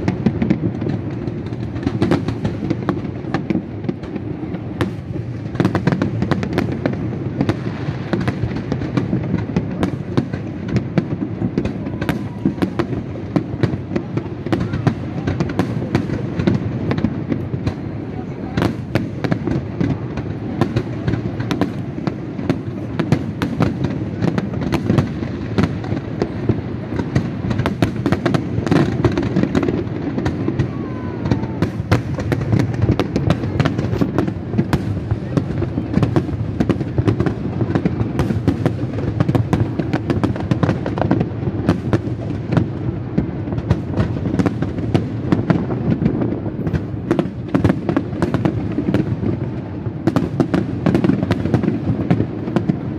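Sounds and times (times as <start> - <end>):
fireworks bangs and crackles: 0.0 - 52.9.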